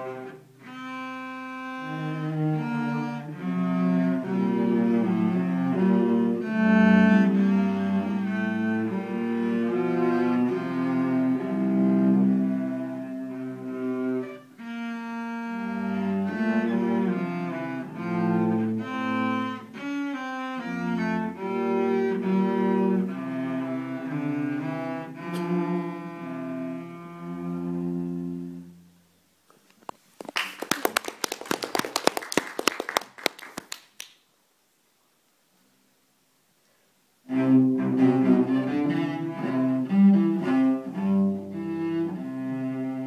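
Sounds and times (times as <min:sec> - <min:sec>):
cellos playing bowed duet: 0:00.0 - 0:29.0, 0:37.3 - 0:43.0
people clapping: 0:30.2 - 0:34.2.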